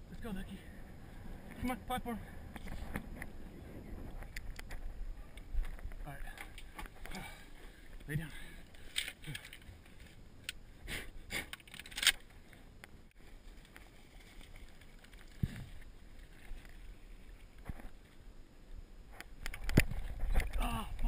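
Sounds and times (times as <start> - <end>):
shotgun shells clicking and knocking: 8.6 - 10.6, 11.5 - 12.3.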